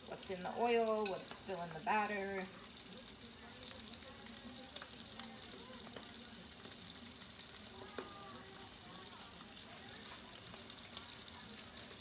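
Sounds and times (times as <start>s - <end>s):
oil sizzling and crackling: 0.0s - 12.0s
metal tongs clicking on pan: 0.8s - 1.5s.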